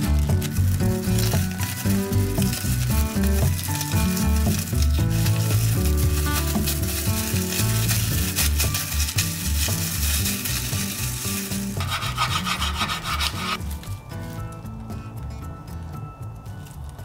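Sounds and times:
plastic film crinkling: 0.0s - 14.8s
knife sawing through rice: 11.8s - 13.6s.

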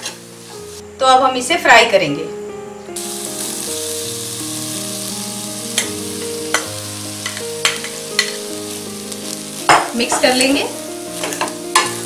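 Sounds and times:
rice sizzling in oily pan: 3.0s - 12.0s.

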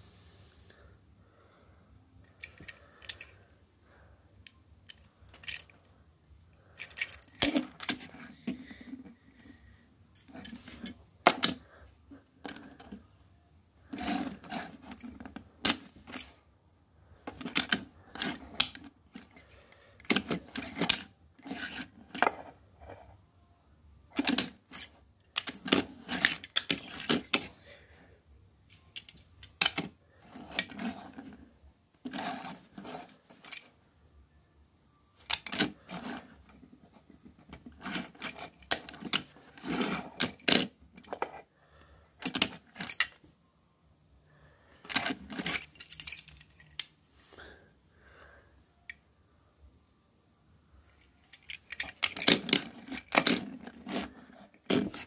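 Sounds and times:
toy cars clicking on wooden table: 2.3s - 3.4s, 17.2s - 19.4s, 20.0s - 22.6s, 24.2s - 27.5s, 35.2s - 36.2s.

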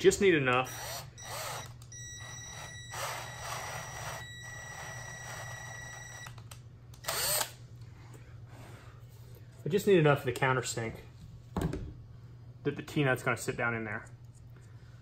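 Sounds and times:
cordless drill whining: 0.6s - 6.4s, 7.0s - 7.6s.

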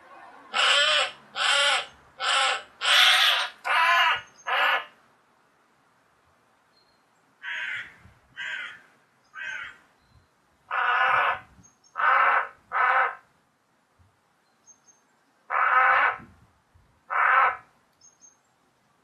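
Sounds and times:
crow cawing: 0.5s - 4.9s, 7.4s - 8.8s, 9.4s - 9.8s, 10.7s - 13.2s, 15.5s - 16.2s, 17.1s - 17.6s.

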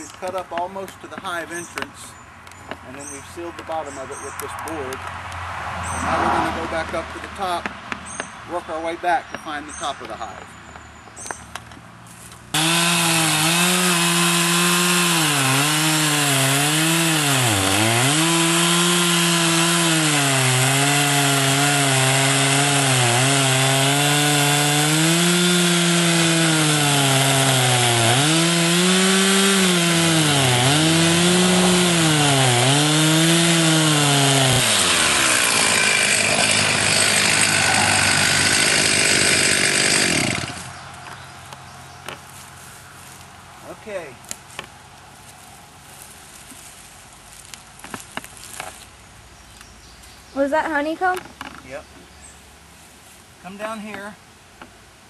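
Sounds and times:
chainsaw cutting into log: 12.5s - 40.8s.

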